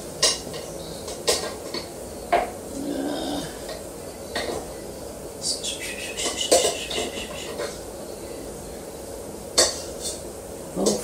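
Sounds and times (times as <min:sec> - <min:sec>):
kitchenware clattering: 0:00.2 - 0:02.6, 0:03.6 - 0:04.7, 0:06.2 - 0:07.8, 0:09.6 - 0:11.0.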